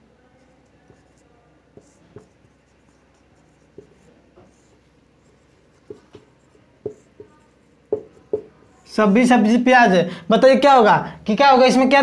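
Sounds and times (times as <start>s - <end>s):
marker pen writing on whiteboard: 0.3s - 9.3s.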